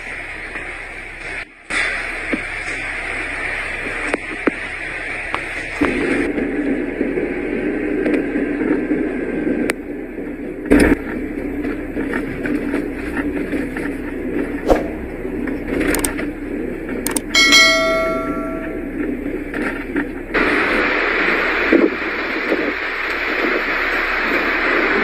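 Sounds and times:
car tyres on snowy road: 0.0s - 17.8s, 19.0s - 25.0s
bell-like ding: 17.4s - 19.0s.

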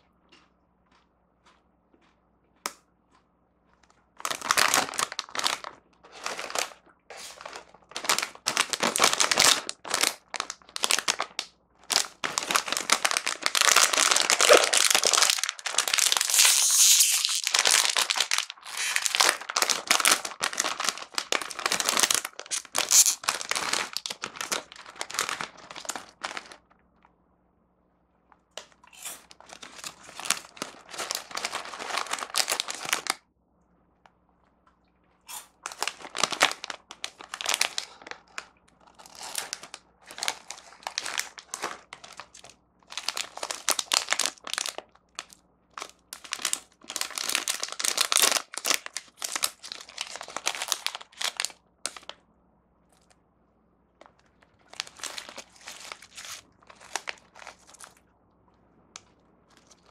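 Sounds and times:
plastic wrappers crinkling: 3.7s - 26.7s, 28.6s - 33.2s, 35.3s - 52.2s, 54.0s - 58.0s, 59.0s - 59.9s
plastic packet pulled open: 4.2s - 26.6s, 28.9s - 33.2s, 35.3s - 52.2s, 54.1s - 58.0s.

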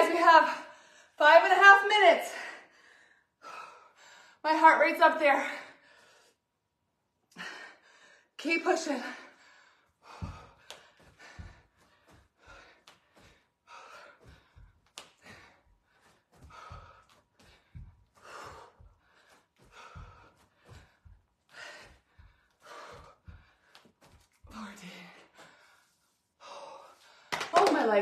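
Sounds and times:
woman breathing hard: 2.3s - 4.4s, 7.3s - 27.4s
feet thumping on carpet: 10.1s - 24.7s.

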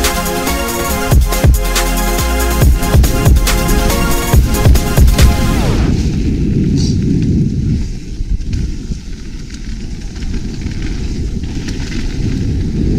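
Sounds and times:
wind buffeting microphone: 2.6s - 12.9s
bike tyres rumbling over dirt: 2.7s - 12.9s.

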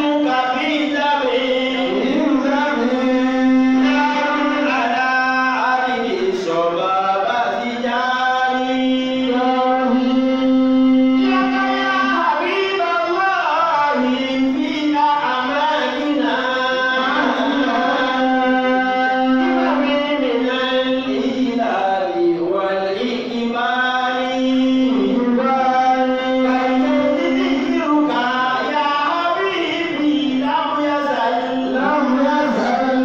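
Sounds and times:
man chanting: 0.0s - 33.0s.

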